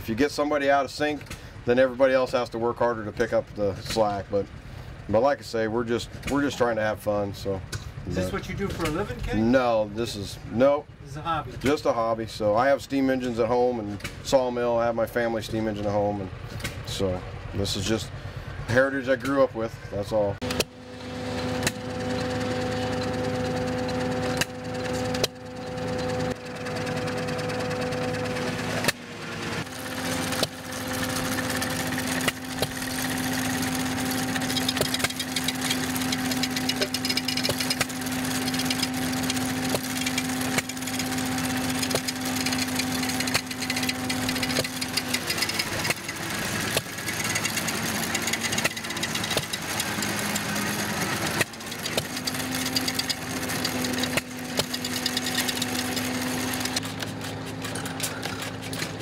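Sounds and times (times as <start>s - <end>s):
gas engine knocking unevenly: 29.8s - 56.8s.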